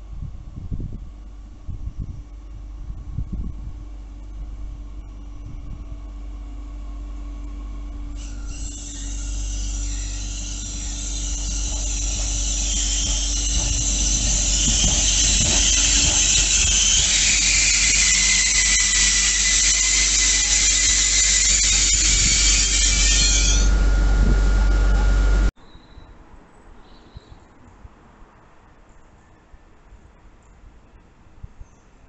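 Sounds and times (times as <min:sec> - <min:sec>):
low rumble: 0:00.0 - 0:17.5
train brakes squealing: 0:08.1 - 0:26.2.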